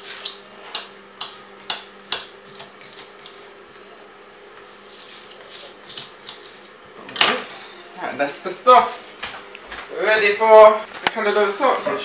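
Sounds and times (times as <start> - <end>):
knife chopping on stone board: 0.2 - 3.4.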